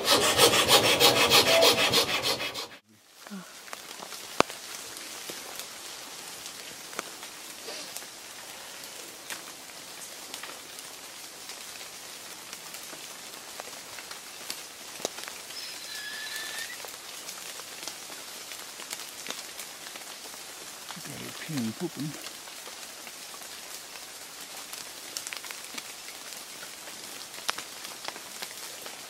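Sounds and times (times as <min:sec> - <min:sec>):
steady outdoor hiss: 0:00.0 - 0:29.0
short high whistle: 0:15.6 - 0:16.8.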